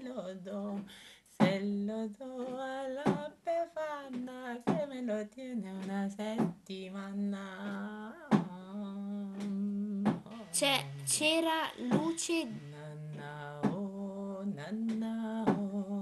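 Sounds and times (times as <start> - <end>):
person humming slow tune: 6.7 - 16.0.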